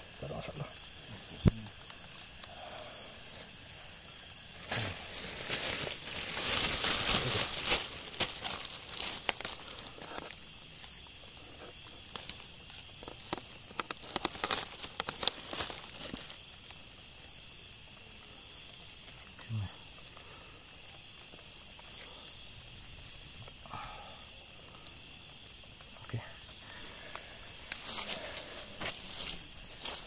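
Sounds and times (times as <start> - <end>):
night insects droning: 0.0 - 30.0
sharp crackles and clicks: 0.1 - 22.2
rustling crinkling noise: 0.6 - 16.9, 26.7 - 30.0.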